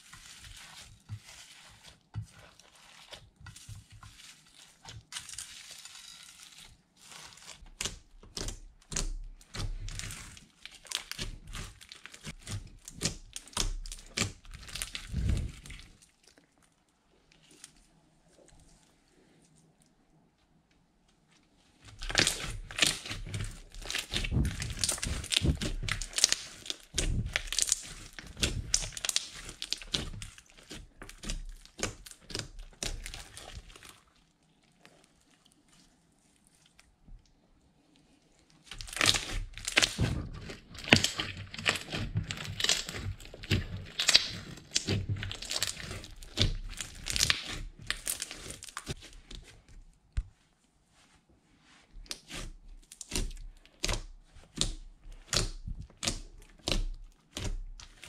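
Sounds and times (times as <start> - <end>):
slime crackling and popping: 4.0 - 16.7, 21.9 - 35.6, 38.6 - 49.5, 52.1 - 58.0.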